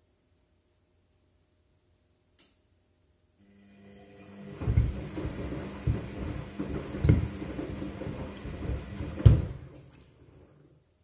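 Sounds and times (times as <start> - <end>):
shoes thudding in washing machine drum: 4.6 - 9.9.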